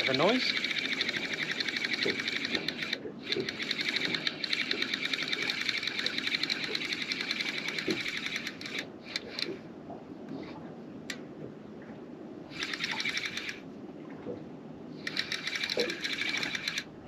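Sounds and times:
fishing reel ratchet buzzing: 0:00.0 - 0:09.6, 0:12.5 - 0:13.6, 0:15.1 - 0:16.9.

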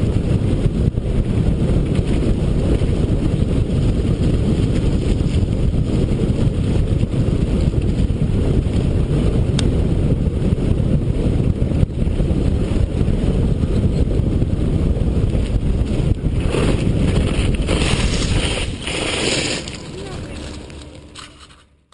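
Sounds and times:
wind buffeting on microphone: 0:00.0 - 0:21.6
tyres rumbling on gravel: 0:15.7 - 0:21.7.

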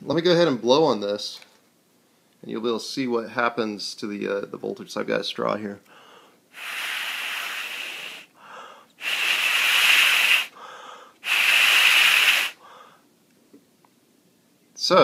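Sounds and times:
person breathing in: 0:05.9 - 0:13.1
breath blown through a straw: 0:06.5 - 0:08.4, 0:09.0 - 0:12.7.

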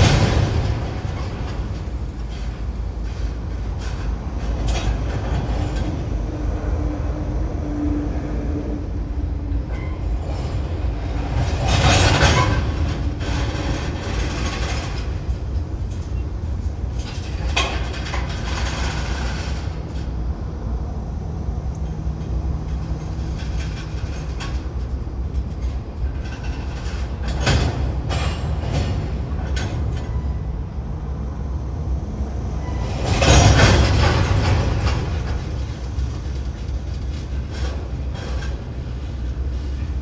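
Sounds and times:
train wheels clacking: 0:00.0 - 0:07.0, 0:09.5 - 0:20.2, 0:32.6 - 0:40.0
freight train rumbling: 0:00.0 - 0:40.0.

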